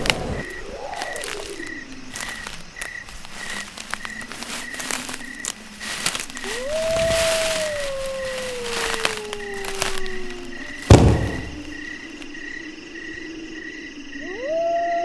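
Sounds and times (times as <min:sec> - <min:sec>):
crackling clicks: 0:00.0 - 0:12.3
rising and falling call: 0:06.2 - 0:11.8.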